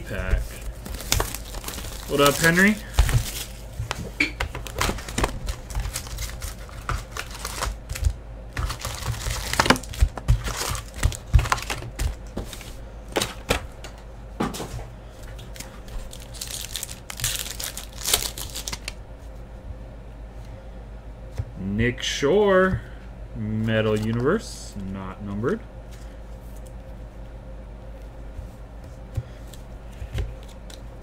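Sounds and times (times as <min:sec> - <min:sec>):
foil pack crinkling: 0:00.0 - 0:13.5, 0:15.5 - 0:19.0.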